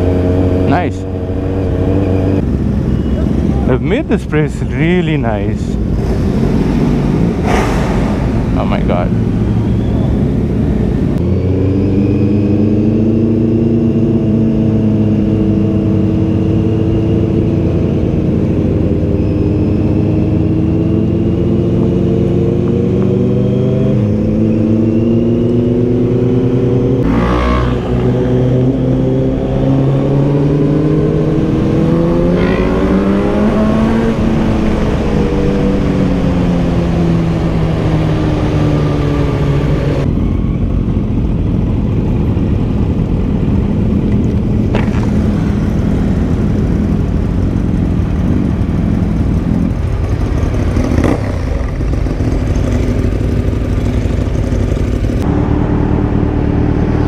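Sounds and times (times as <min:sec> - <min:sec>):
motorcycle engine: 0:00.0 - 0:57.0
short rush of noise: 0:07.4 - 0:10.0.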